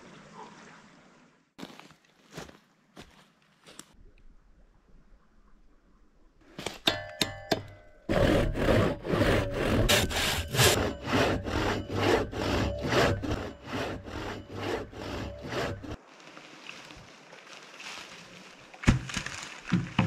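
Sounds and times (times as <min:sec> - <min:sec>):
hand saw cutting wood: 0:08.1 - 0:16.0
saw clicking against wood: 0:08.1 - 0:16.0.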